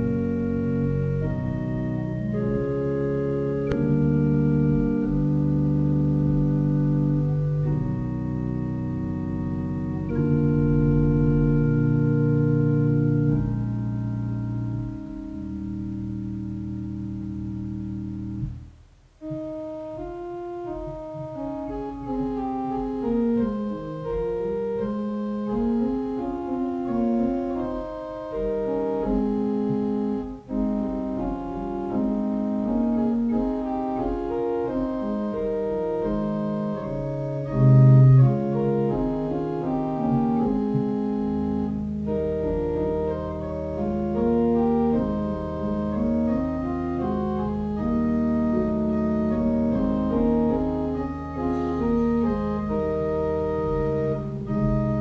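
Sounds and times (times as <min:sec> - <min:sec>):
slow organ music: 0:00.0 - 0:55.0.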